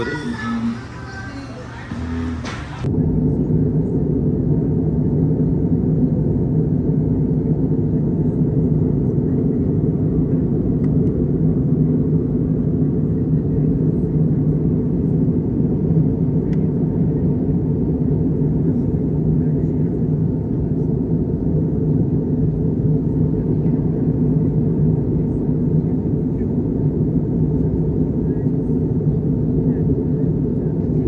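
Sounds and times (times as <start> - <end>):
jet engines rumbling: 0.0 - 31.0.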